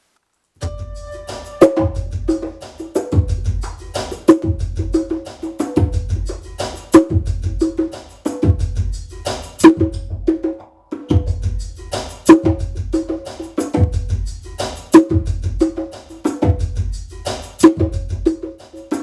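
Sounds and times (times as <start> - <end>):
lounge backing track with bass: 0.6 - 10.3
hand drums playing: 0.6 - 19.0.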